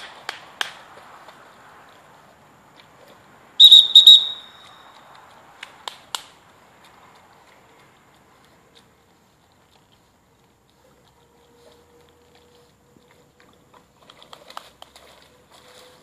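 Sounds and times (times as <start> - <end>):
dog whistle blasts: 3.6 - 5.0.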